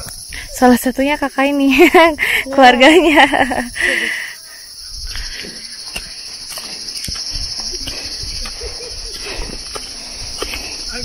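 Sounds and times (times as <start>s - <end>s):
insects droning: 0.0s - 11.0s
woman's voice: 0.4s - 3.6s.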